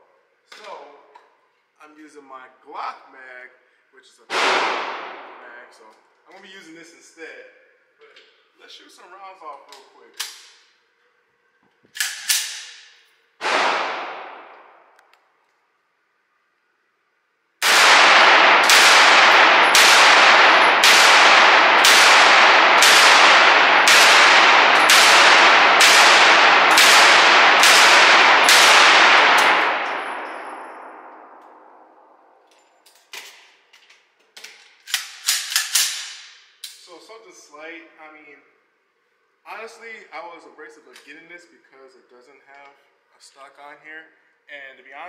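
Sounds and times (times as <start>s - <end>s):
pistol shots echoing indoors: 4.3s - 5.8s, 11.9s - 15.3s, 17.6s - 33.7s, 34.4s - 36.8s.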